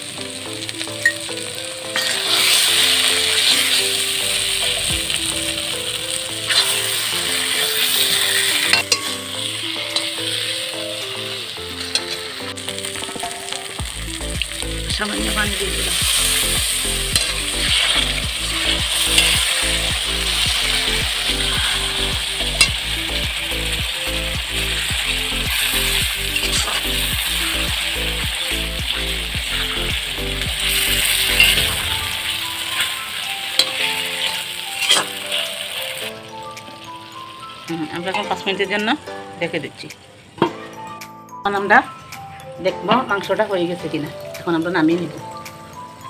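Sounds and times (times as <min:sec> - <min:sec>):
chicken sizzling in a pan: 0:00.0 - 0:39.0
metal spatula scraping pan: 0:06.1 - 0:10.6, 0:11.2 - 0:13.8, 0:30.6 - 0:35.4.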